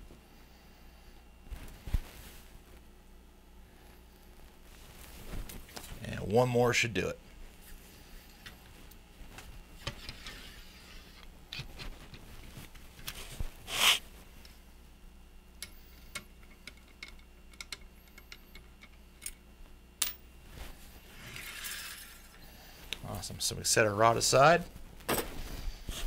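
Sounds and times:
rod sliding rustle: 9.8 - 11.2, 13.1 - 14.1
patch brushing scrape: 13.2 - 14.1.

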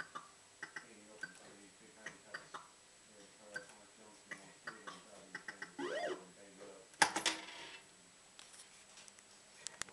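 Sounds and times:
electronic tones sweeping: 5.8 - 6.3.

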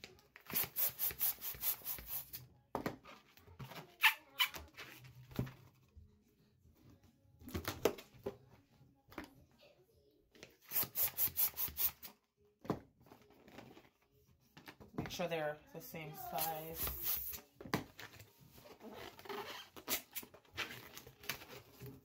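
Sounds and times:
hand balloon pump hissing: 0.4 - 2.4, 10.6 - 12.1, 16.3 - 17.4.

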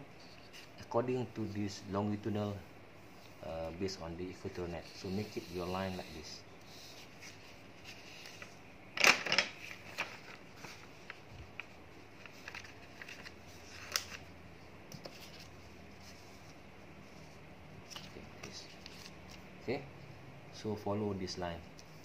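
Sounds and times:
tracing paper rustling and crinkling: 4.4 - 19.5.

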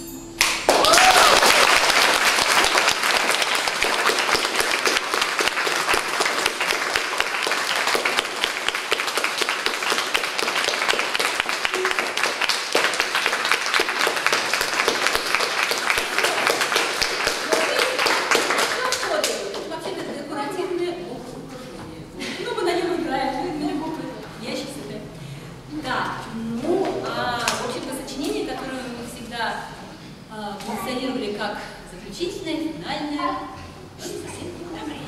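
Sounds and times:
audience applauding: 0.4 - 19.8.

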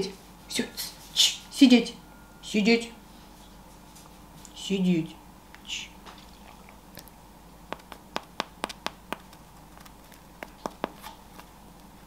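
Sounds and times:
macarons tapping together: 7.7 - 11.2.

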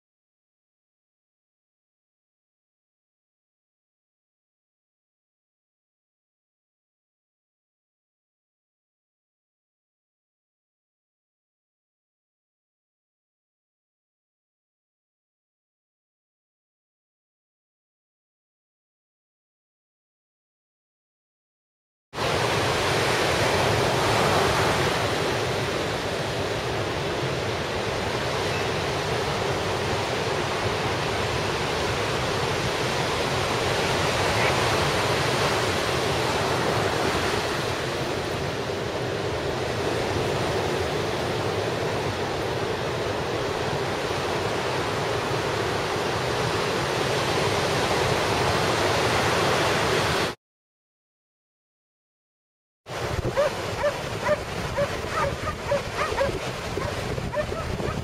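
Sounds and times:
ocean surf breaking: 22.2 - 50.4, 52.9 - 58.0.

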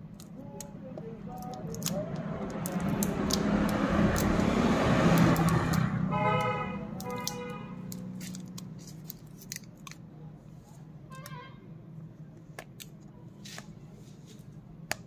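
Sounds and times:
motor vehicle passing by: 1.8 - 8.9
vehicle horn toots: 6.1 - 7.8, 11.1 - 11.6.

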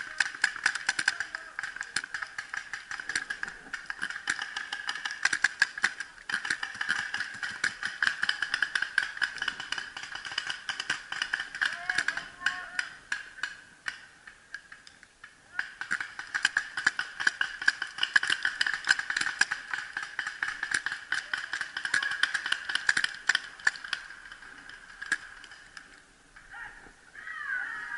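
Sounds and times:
paintball markers popping: 15.6 - 24.0.

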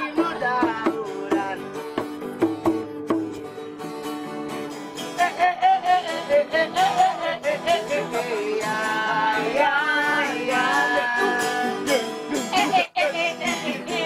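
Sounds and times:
hand drum: 0.0 - 14.0
strummed acoustic guitars: 0.0 - 14.0
group singing: 5.2 - 14.0.

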